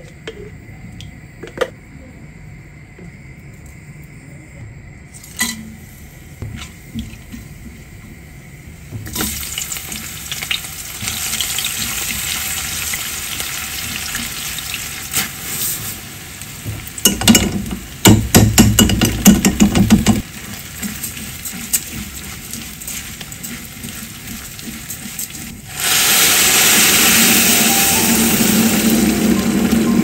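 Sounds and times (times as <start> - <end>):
onions sizzling in oil: 5.1 - 30.0
spatula stirring in pan: 18.8 - 25.8.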